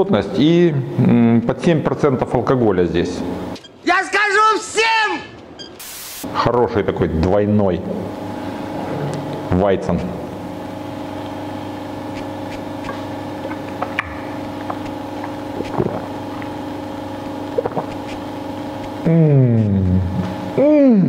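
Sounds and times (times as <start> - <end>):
brewery equipment humming: 0.0 - 21.0
man's appreciative mmm: 19.0 - 21.0.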